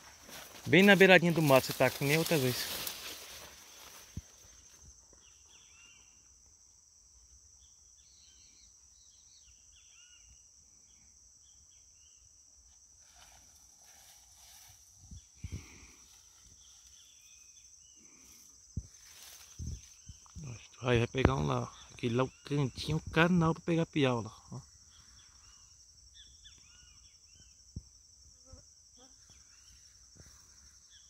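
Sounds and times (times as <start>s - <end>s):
high-pitched insect drone: 13.0s - 23.1s.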